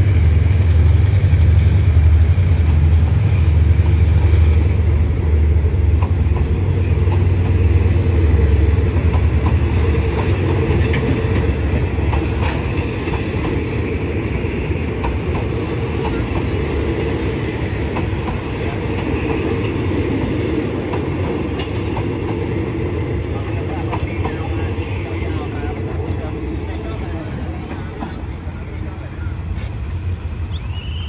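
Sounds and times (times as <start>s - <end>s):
train wheels rumbling on track: 0.0s - 31.0s
high wheel squeals: 19.9s - 20.9s.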